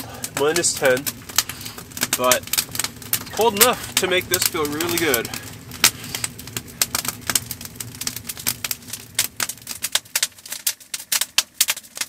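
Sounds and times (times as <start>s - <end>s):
firewood crackling: 0.0s - 12.0s
low steady rumble: 0.0s - 12.0s.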